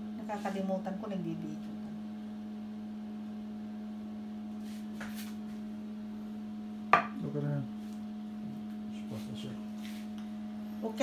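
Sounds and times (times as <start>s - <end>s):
steady low hum: 0.0s - 11.0s
plastic spoon knocking glass dish: 7.0s - 7.2s.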